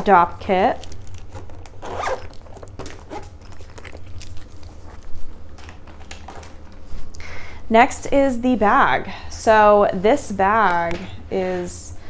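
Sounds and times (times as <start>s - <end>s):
low steady hum: 0.0s - 12.0s
fabric bag handling noise: 0.6s - 7.1s.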